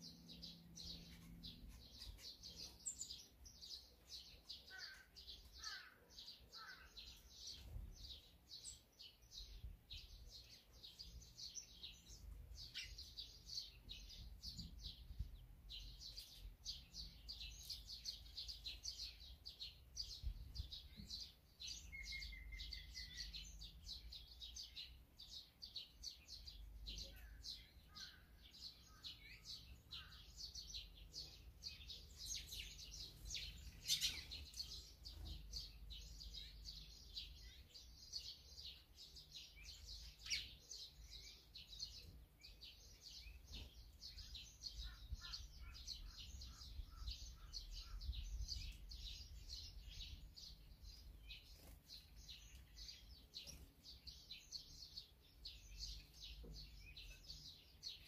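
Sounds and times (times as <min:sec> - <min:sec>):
bird trill: 0:00.0 - 0:08.8, 0:21.6 - 0:24.8, 0:26.1 - 0:58.0
songbirds chirping: 0:00.0 - 0:58.0.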